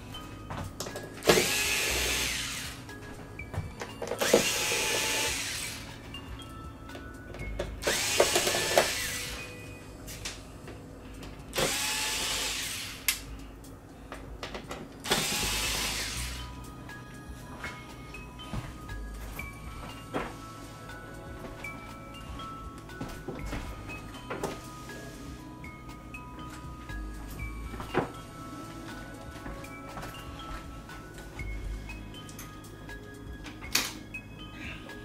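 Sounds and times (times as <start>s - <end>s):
electric screwdriver whirring: 1.2s - 2.8s, 4.2s - 5.8s, 7.8s - 9.4s, 11.6s - 13.2s, 15.1s - 16.4s.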